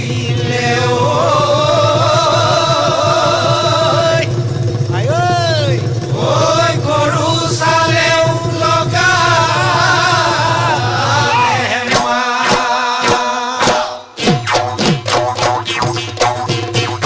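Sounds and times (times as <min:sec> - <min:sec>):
low drone: 0:00.0 - 0:12.2
voices singing together: 0:00.0 - 0:14.3
sharp drum beats: 0:00.0 - 0:17.0.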